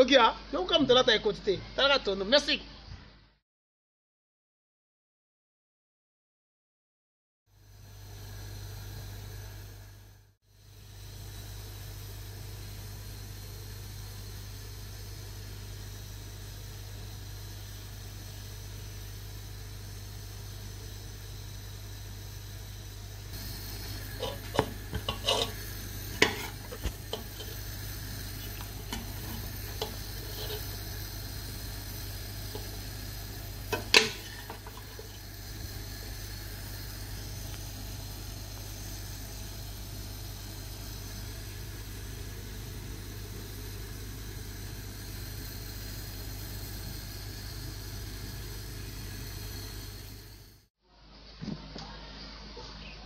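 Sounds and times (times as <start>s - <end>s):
metal spoon scraping a pot: 23.9s - 31.0s, 33.7s - 35.2s.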